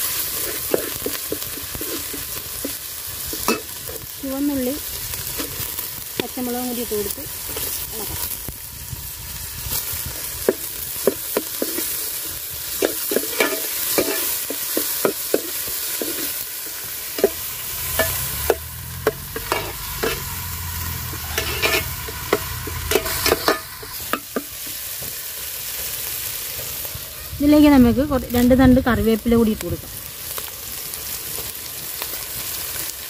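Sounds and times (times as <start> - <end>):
food sizzling in hot oil: 0.0 - 33.0
metal spoon scraping pot: 0.3 - 2.8, 12.8 - 14.6, 17.2 - 20.4, 21.0 - 24.5.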